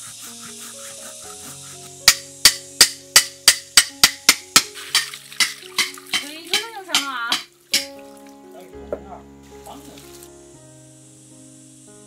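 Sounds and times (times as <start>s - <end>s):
background music with held notes: 0.0s - 12.0s
sharp knocks: 2.1s - 8.0s.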